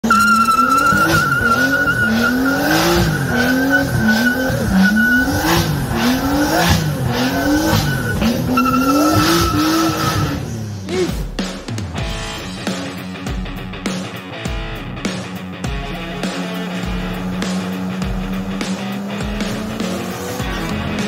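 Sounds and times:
tyres squealing: 0.0s - 10.5s
car engine revving: 0.0s - 11.2s, 15.1s - 21.0s.

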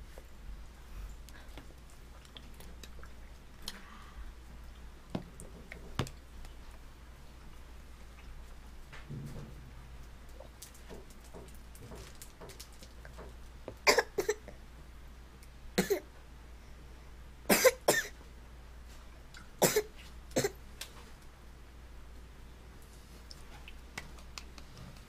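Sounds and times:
toddler coughing: 13.9s - 14.5s, 15.8s - 16.1s, 17.5s - 18.1s, 19.6s - 20.6s.

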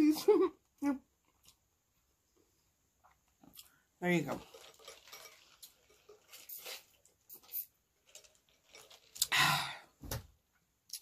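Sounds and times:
sipping through a straw: 4.4s - 9.6s.

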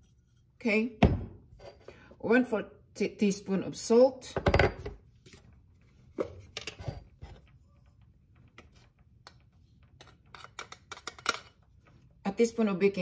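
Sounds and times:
kitchen utensils clicking and knocking: 9.2s - 11.6s.

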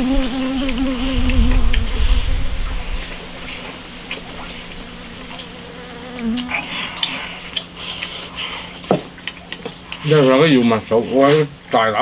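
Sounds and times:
fly buzzing: 0.0s - 8.4s.

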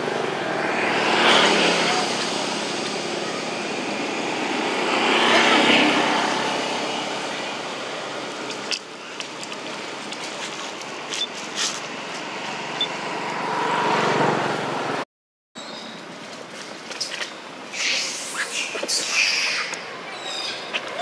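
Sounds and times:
motor vehicle passing: 0.0s - 15.0s
road noise: 0.0s - 21.0s.

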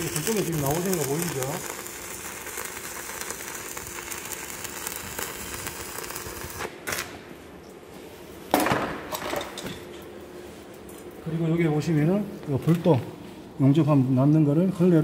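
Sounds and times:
arc welding crackle: 0.0s - 7.3s.

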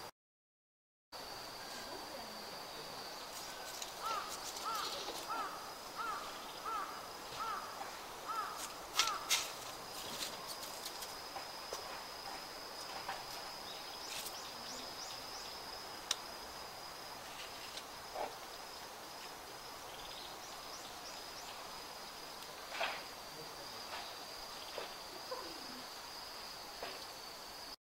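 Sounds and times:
high-pitched insect trill: 1.2s - 27.8s
bird chirping: 19.9s - 21.7s.

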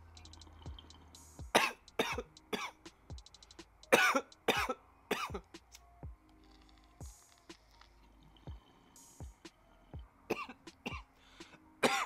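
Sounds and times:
person coughing harshly: 1.5s - 2.8s, 3.9s - 5.4s, 10.3s - 11.1s.

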